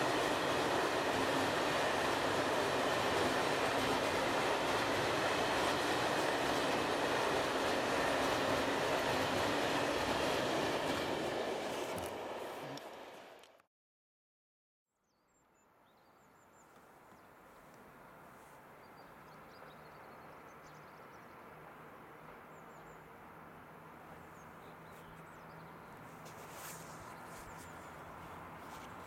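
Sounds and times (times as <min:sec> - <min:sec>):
distant locomotive hum: 0:00.0 - 0:13.6, 0:17.4 - 0:29.0
small birds chirping: 0:24.2 - 0:29.0.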